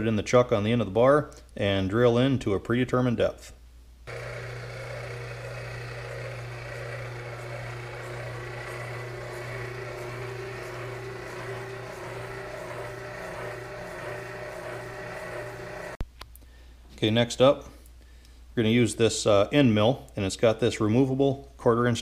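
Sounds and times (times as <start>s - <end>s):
boring bar motor drilling: 4.1s - 16.0s.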